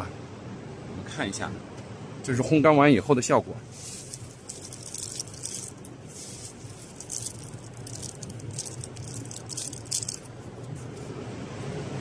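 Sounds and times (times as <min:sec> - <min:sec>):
steady low hum: 0:00.0 - 0:12.0
dried root slices rattling in hand: 0:03.7 - 0:10.7.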